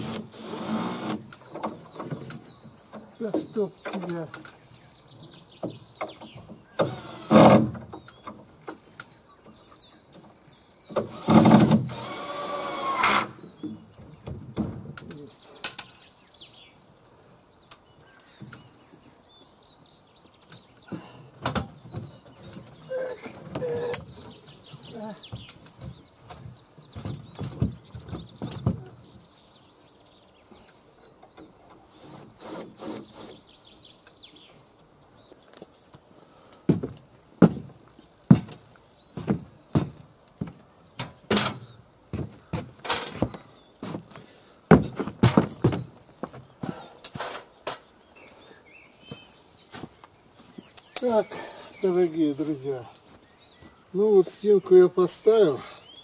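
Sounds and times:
cordless drill drilling into wood: 0:00.0 - 0:01.2, 0:06.8 - 0:07.6, 0:11.0 - 0:13.4
small birds chirping: 0:00.0 - 0:56.0.

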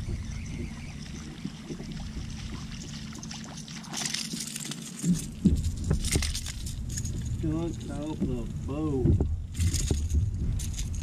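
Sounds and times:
fish thrashing and splashing water: 0:00.0 - 0:07.4
steady low rumble: 0:00.0 - 0:11.0.

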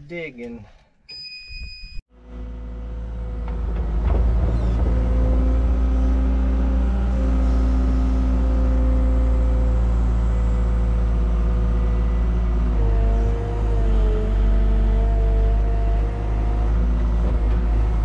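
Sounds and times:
short electronic beep: 0:01.1 - 0:02.0
diesel engine starting and running: 0:02.1 - 0:18.0.

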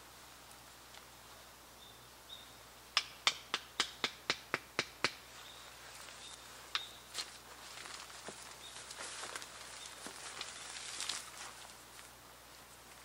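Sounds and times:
stake being hammered into ground: 0:02.9 - 0:05.3.

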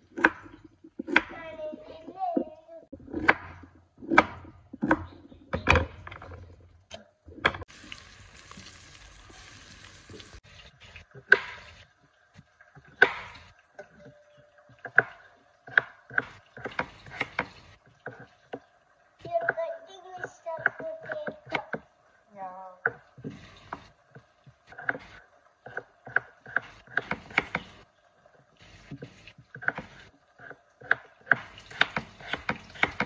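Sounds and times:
vegetables sizzling in pan: 0:07.7 - 0:11.8
knife chopping on wooden board: 0:24.7 - 0:27.8, 0:28.9 - 0:33.0.

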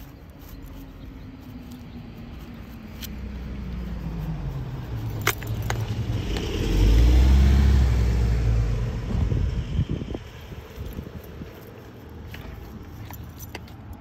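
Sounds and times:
light metallic clicks: 0:00.0 - 0:06.6, 0:10.6 - 0:14.0
vehicle engine driving by: 0:03.0 - 0:12.0.

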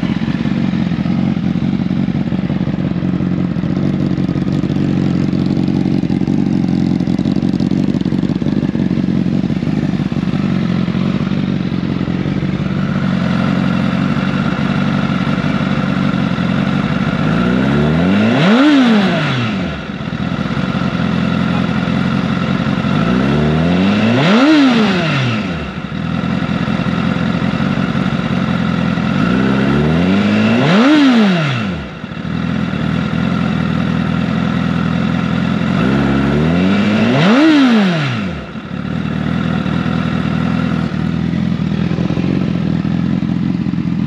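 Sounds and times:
motorcycle engine idling and revving: 0:00.0 - 0:44.0.

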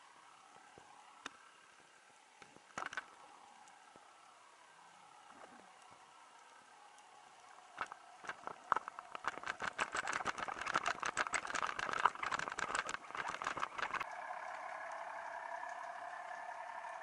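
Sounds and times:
steady hiss: 0:00.0 - 0:09.2
sharp clicks and rattles underwater: 0:02.4 - 0:03.8, 0:05.2 - 0:17.0.

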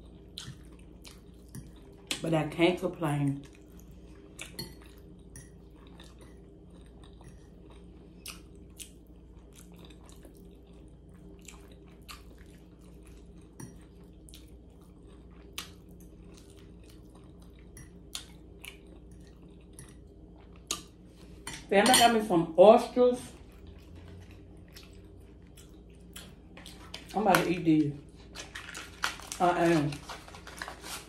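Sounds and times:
person chewing: 0:00.0 - 0:02.1, 0:03.4 - 0:21.4, 0:23.4 - 0:27.1
steady low hum: 0:00.0 - 0:31.0.

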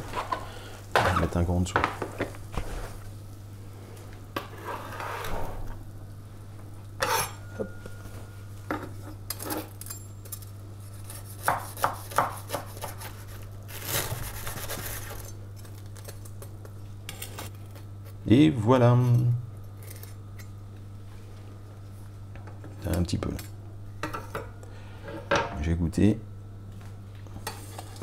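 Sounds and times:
metal spatula scraping baking tray: 0:04.4 - 0:05.6, 0:07.0 - 0:07.5, 0:27.4 - 0:28.0.

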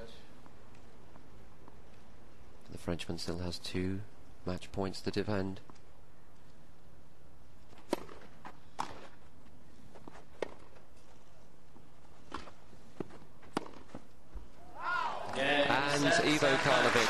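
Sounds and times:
tennis rackets hitting ball: 0:07.8 - 0:09.2, 0:10.0 - 0:10.8, 0:12.2 - 0:14.1.

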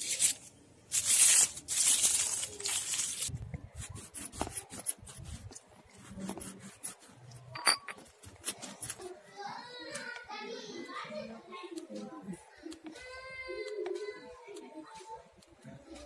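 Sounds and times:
potato scraping on rough stone: 0:00.0 - 0:09.2.

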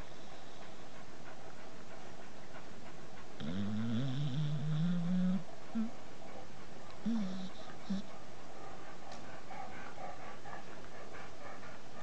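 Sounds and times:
dog snoring: 0:03.4 - 0:05.9, 0:07.0 - 0:08.1
dog moaning: 0:03.4 - 0:06.0, 0:07.0 - 0:08.2.

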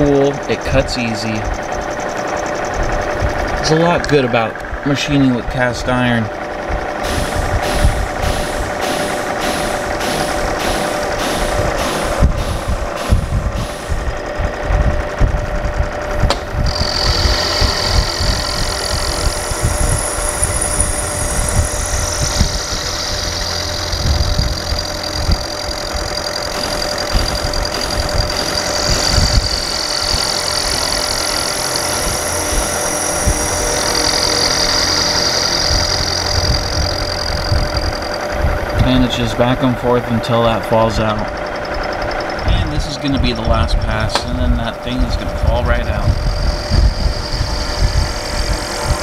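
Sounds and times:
cutter rumbling in iron: 0:00.0 - 0:49.0
high wavering whine: 0:00.0 - 0:49.0
milling machine motor hum: 0:00.0 - 0:49.0.

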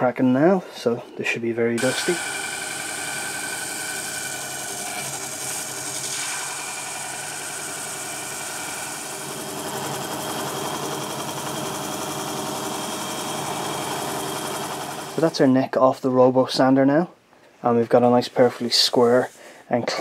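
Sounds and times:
drill press motor hum: 0:01.8 - 0:15.3
sanding drum grinding wood: 0:01.8 - 0:15.4.

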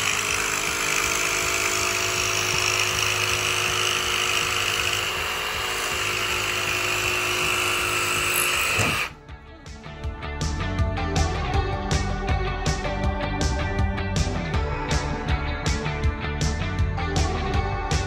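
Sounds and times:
jigsaw cutting board: 0:00.0 - 0:09.2.

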